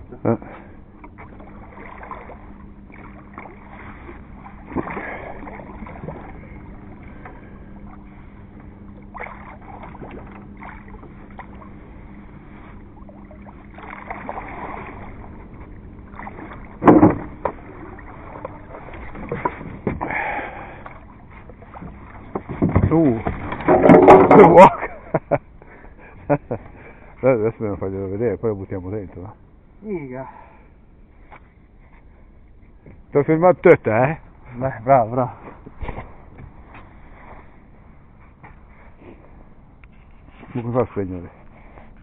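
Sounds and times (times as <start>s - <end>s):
fish splashing and thrashing: 0.5s - 25.1s
knocks and scrapes on boat hull: 16.8s - 17.6s, 18.9s - 20.1s, 21.4s - 24.6s
loud thump against boat: 16.8s - 17.6s, 19.2s - 20.1s, 21.8s - 24.6s.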